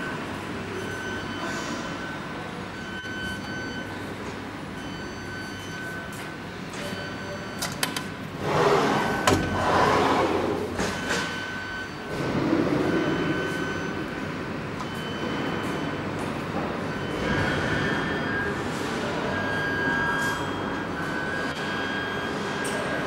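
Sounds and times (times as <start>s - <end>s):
machine shop hum: 0.0s - 23.0s
sliding glass door rolling: 8.4s - 11.0s.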